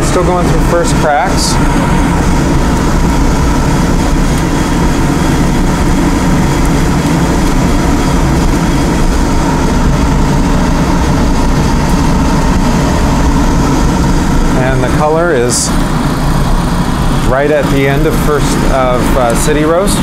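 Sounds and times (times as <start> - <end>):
coffee roaster blower rushing air: 0.0 - 20.0.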